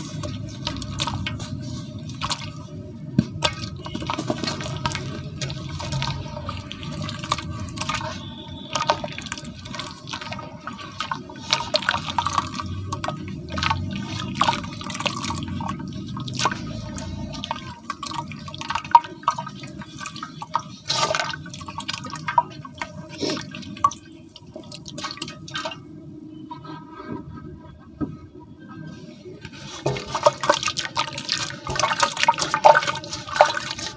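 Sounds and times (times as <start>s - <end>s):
hand squishing wet cement: 0.0s - 23.7s
water splashing: 0.0s - 25.9s, 29.5s - 33.9s.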